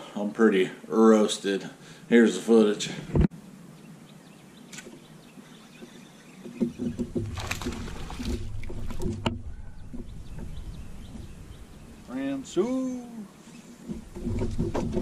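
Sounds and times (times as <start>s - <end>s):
short knocks: 5.8s - 12.0s, 13.8s - 15.0s
low rumble: 7.0s - 12.5s.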